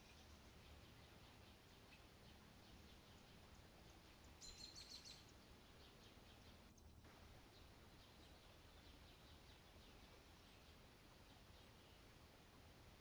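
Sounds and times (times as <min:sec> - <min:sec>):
faint outdoor hiss: 0:00.0 - 0:13.0
faint high chirp: 0:04.4 - 0:05.2.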